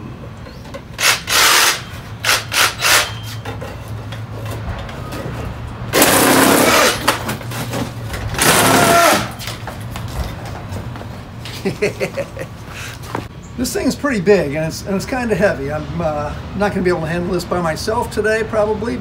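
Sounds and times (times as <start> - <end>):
power tool cutting cardboard: 1.0 - 3.4, 6.0 - 7.2, 8.4 - 9.3.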